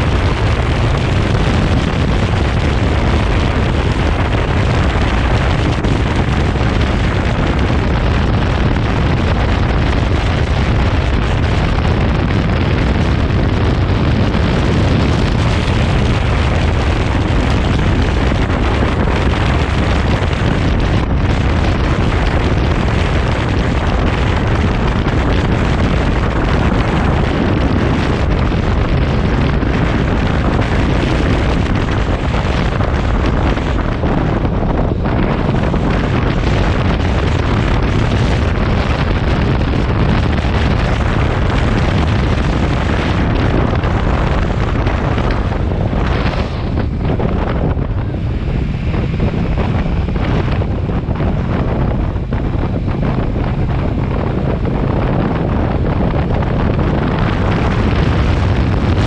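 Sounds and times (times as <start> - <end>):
wind buffeting microphone: 0.0 - 59.0.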